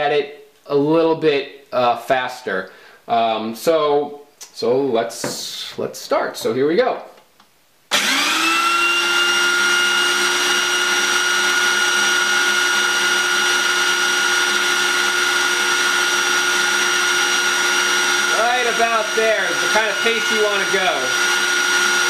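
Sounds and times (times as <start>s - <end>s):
food processor motor whining: 7.9s - 22.0s.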